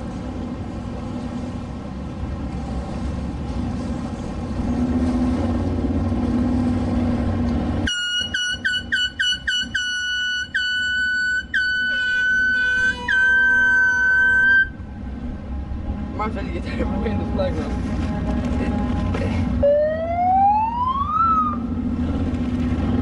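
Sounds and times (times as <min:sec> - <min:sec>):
boat motors rumbling: 0:00.0 - 0:23.0
high-pitched boat horn toots: 0:07.9 - 0:14.9.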